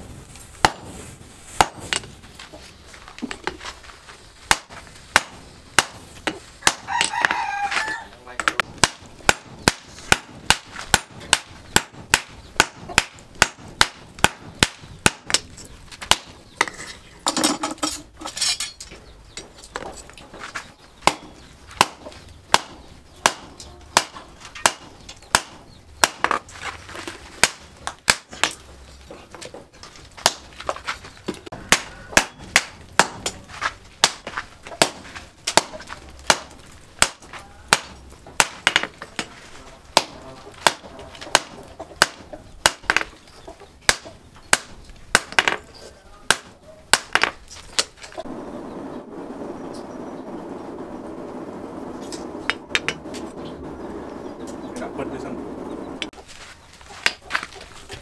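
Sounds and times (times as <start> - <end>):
hammer striking steel on anvil: 31.5 - 33.4.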